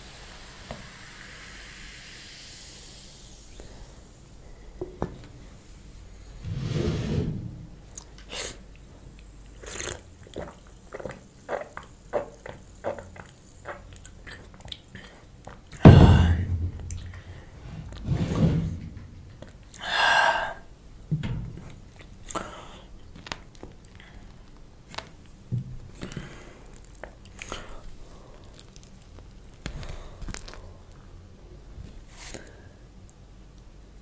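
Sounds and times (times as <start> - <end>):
chewing: 9.2 - 15.8, 25.9 - 31.0
gulping and mouth clicks: 9.2 - 15.8, 25.9 - 30.6
heavy thump: 15.8 - 19.4.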